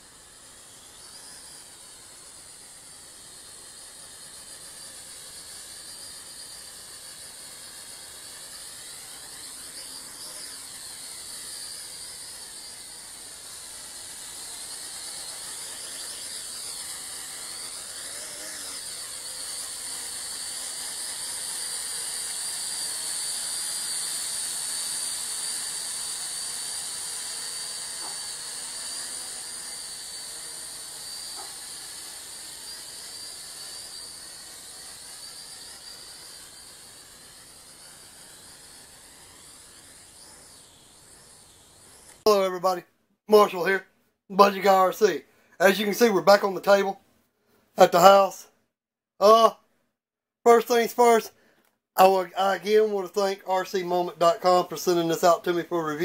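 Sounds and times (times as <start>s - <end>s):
toy drone whining: 0.0s - 43.8s, 44.4s - 46.9s, 47.8s - 48.5s, 50.5s - 51.4s, 52.0s - 56.0s.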